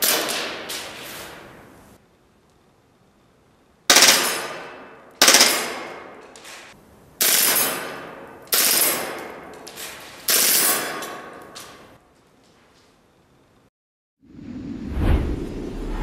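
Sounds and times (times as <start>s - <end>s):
airsoft pistol firing bursts: 3.9s - 4.6s, 5.2s - 6.0s.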